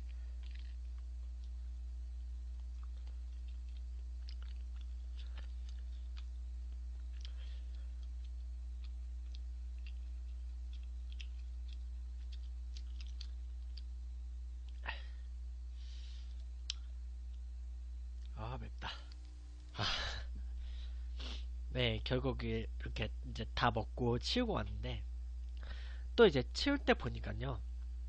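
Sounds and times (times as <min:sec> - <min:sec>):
person chewing: 0:00.0 - 0:17.5, 0:20.7 - 0:21.5
steady low hum: 0:00.0 - 0:28.0.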